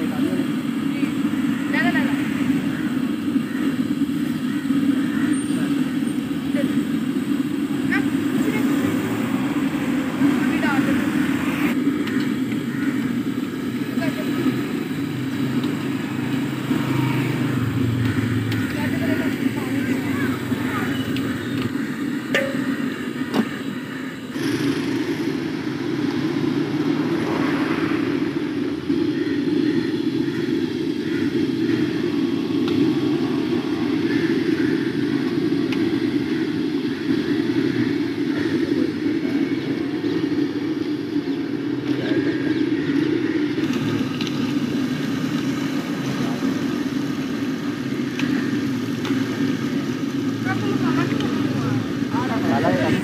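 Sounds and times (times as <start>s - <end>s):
hot oil sizzling: 0.0s - 53.0s
steady low rumble: 0.0s - 53.0s
oil sizzling around fries: 41.6s - 53.0s.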